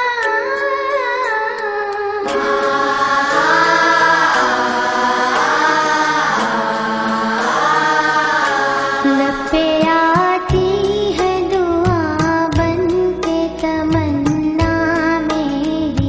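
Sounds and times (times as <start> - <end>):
person singing gliding melody: 2.2 - 10.4.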